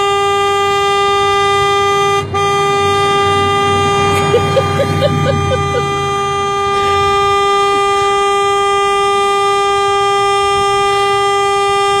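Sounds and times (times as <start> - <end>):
car horn long blast: 0.0 - 12.0.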